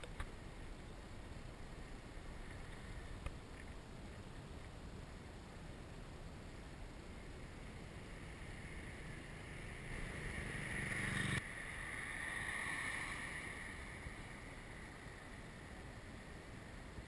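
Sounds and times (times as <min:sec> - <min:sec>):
passing traffic noise: 0:06.4 - 0:17.0
car passing: 0:06.9 - 0:17.0.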